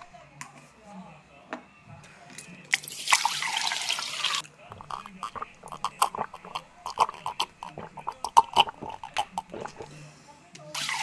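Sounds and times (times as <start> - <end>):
person gulping beer: 4.7 - 10.0.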